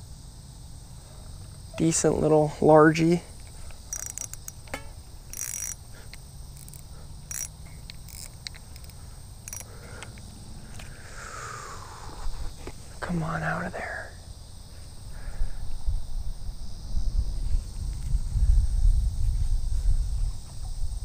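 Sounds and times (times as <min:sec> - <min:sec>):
insects buzzing: 0:00.0 - 0:21.0
fishing reel clicks and scrapes: 0:03.4 - 0:10.9.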